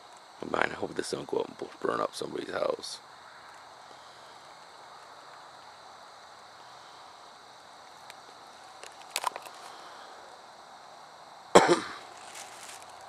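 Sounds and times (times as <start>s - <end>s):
faint steady hiss: 0.0s - 13.0s
tissue paper crackling clicks: 12.1s - 13.0s.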